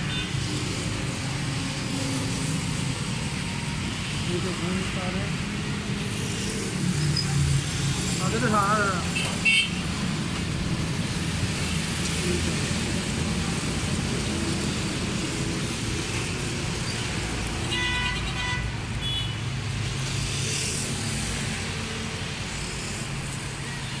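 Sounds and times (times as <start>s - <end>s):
road traffic with engines running: 0.0s - 24.0s
vehicle horn: 9.2s - 9.8s, 17.7s - 19.4s.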